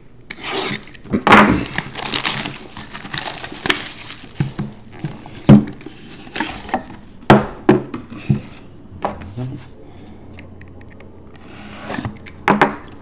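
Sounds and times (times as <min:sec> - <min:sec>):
box rubbing and rustling: 0:01.7 - 0:06.9.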